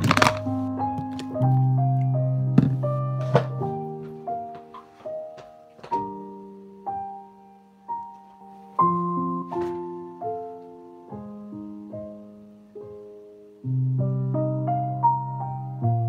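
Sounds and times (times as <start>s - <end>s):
slow calm piano music: 0.0s - 16.0s.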